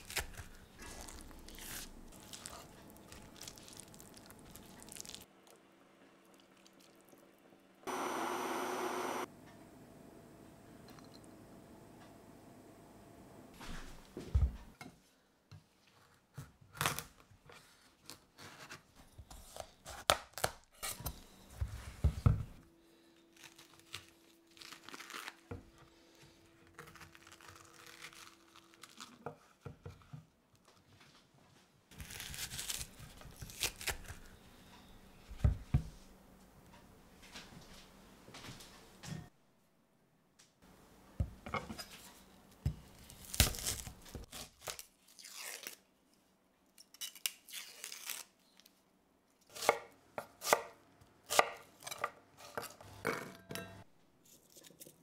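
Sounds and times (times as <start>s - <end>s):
squash pulp crunching and scraping: 0.0s - 5.4s.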